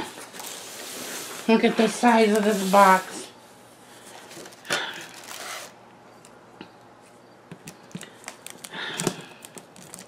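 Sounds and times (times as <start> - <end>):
handling clicks and rustles: 7.5 - 10.0.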